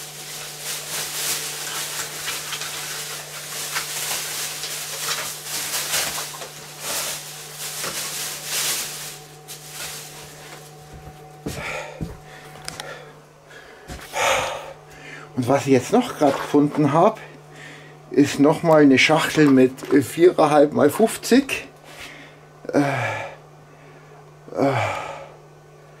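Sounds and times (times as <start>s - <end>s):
plastic sack rustling: 0.0s - 12.8s
steady low hum: 0.0s - 26.0s.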